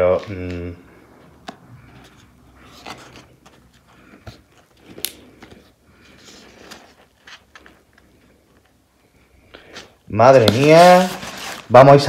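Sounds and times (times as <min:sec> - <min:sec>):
cardboard and paper crinkling: 0:01.5 - 0:08.7, 0:10.4 - 0:12.0.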